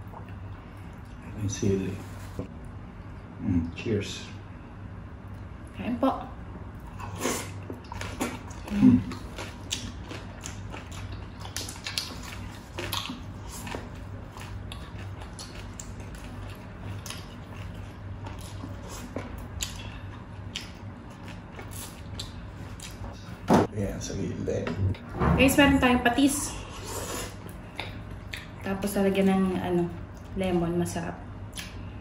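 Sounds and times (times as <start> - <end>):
chewing crispy fried pork: 6.8 - 23.2.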